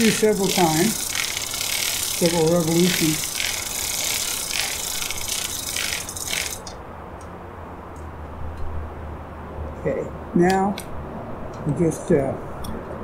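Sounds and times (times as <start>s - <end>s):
bicycle chain ratcheting rattle: 0.0s - 6.8s
freewheel clicking: 0.0s - 6.8s.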